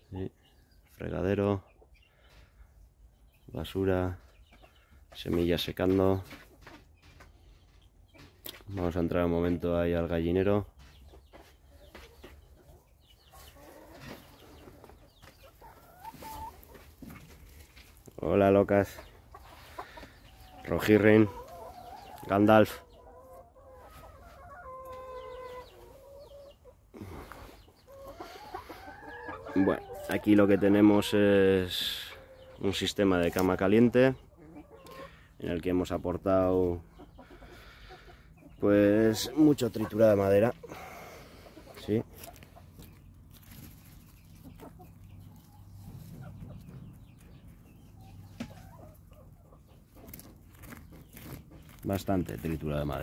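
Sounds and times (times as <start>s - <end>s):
chickens clucking and calling: 0.0s - 53.0s
wood chips rustling: 42.1s - 44.4s, 50.0s - 53.0s.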